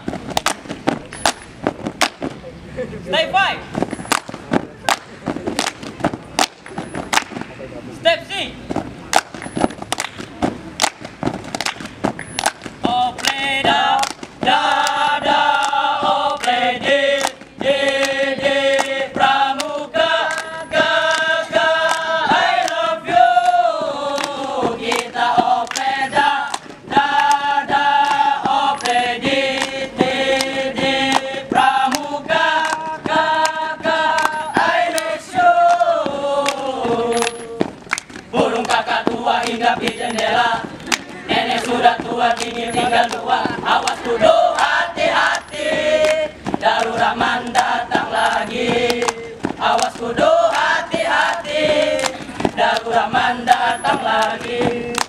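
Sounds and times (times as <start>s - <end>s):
hand claps: 0.4s - 2.3s, 4.1s - 7.5s, 9.1s - 22.8s, 23.4s - 55.0s
boys chanting in unison: 12.8s - 55.0s.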